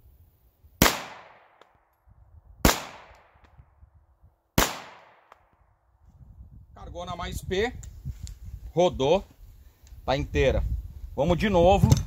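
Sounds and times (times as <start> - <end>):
pistol shots with echo: 0.8 - 1.7, 2.6 - 3.5, 4.6 - 5.5.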